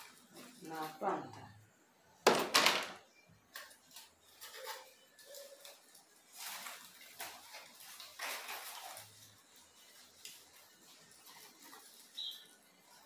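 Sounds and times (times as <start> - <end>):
plant leaves rustling: 0.0 - 1.6, 3.5 - 13.0.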